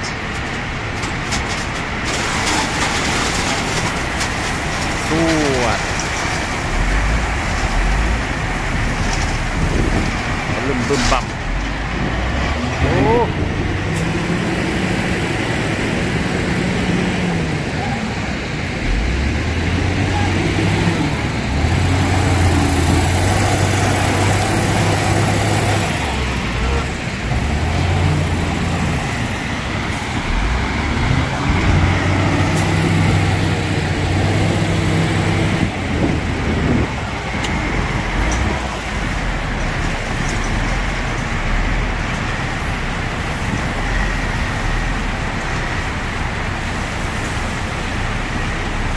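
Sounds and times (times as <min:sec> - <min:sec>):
diesel engine revving: 0:00.2 - 0:48.9.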